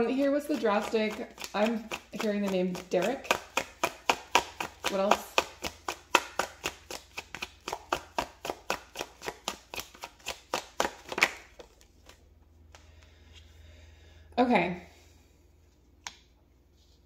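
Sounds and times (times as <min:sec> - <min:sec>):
cards shuffling: 0:00.5 - 0:12.9.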